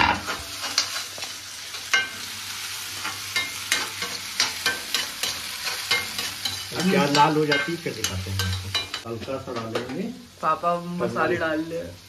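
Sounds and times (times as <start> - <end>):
spatula clanging on pan: 0.0 - 2.4, 3.0 - 10.0
metal spatula scraping a pan: 0.0 - 9.1
onions sizzling in oil: 0.0 - 12.0.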